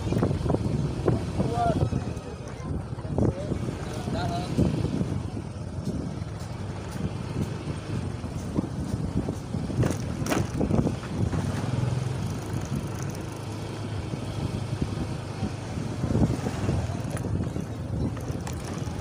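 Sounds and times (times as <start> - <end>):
street traffic rumble: 0.0 - 19.0
motorcycle passing: 9.7 - 19.0.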